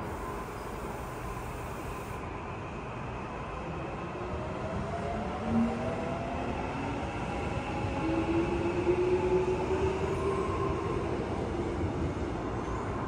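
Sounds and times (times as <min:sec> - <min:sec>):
traction motors whining: 0:00.0 - 0:02.2.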